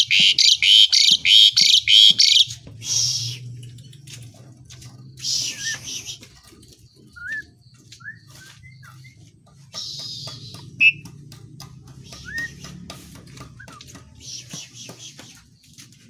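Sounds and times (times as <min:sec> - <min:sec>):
starling slurred whistles: 0:00.0 - 0:03.5, 0:05.2 - 0:06.3, 0:07.1 - 0:09.2, 0:12.0 - 0:12.7.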